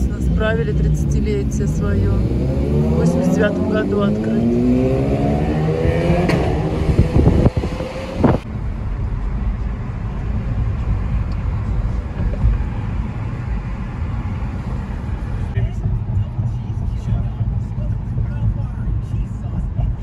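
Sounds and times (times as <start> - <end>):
car engine accelerating: 0.0 - 20.0
road noise rumble: 0.0 - 20.0.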